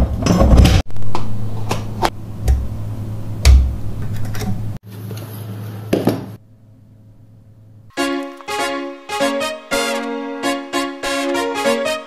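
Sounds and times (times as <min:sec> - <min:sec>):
low electrical hum: 0:00.0 - 0:08.0.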